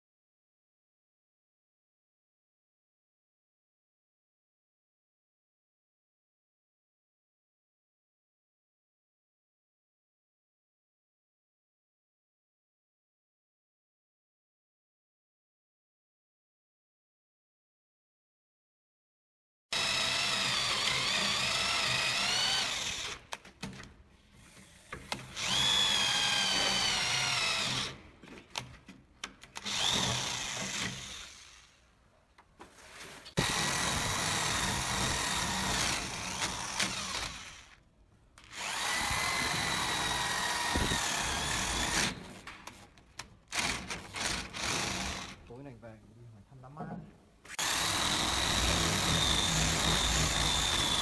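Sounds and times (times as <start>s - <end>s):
electric drill boring into wood: 19.7s - 23.4s, 25.1s - 28.0s, 29.5s - 31.8s, 33.4s - 37.8s, 38.4s - 42.3s, 43.5s - 45.4s, 47.5s - 51.0s.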